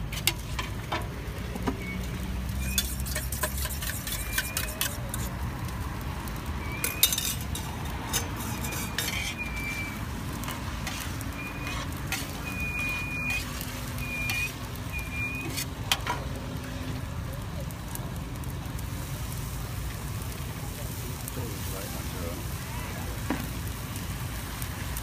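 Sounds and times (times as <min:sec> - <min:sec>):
spatula scraping steel pan: 0:00.0 - 0:00.9, 0:01.9 - 0:05.4, 0:06.8 - 0:14.6, 0:15.2 - 0:16.2
squeaky scrapes: 0:01.8 - 0:05.4, 0:06.7 - 0:15.8.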